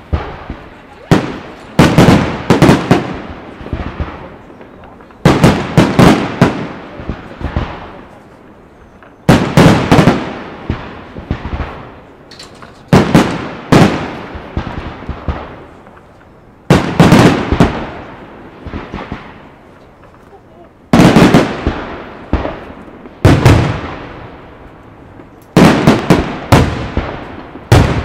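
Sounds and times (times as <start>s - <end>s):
firework shells bursting: 9.0s - 17.9s.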